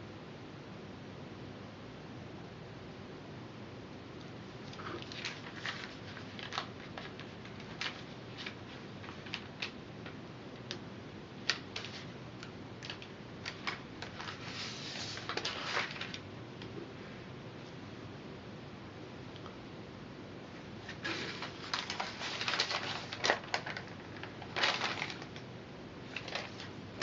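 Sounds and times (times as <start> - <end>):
straw sheet crackling: 20.8 - 25.4.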